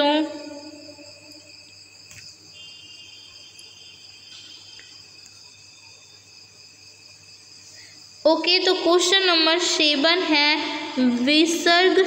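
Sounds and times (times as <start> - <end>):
crickets trilling: 0.0 - 12.0.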